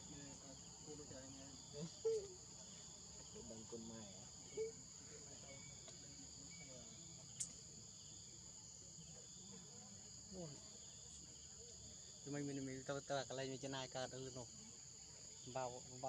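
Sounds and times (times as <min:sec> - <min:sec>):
insect chorus drone: 0:00.0 - 0:16.0
sharp click: 0:07.4 - 0:07.6.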